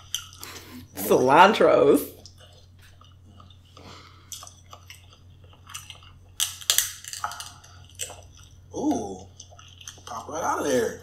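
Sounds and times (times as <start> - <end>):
wet chewing: 0.0 - 0.7, 2.1 - 11.0
seafood shells cracking: 4.3 - 10.7.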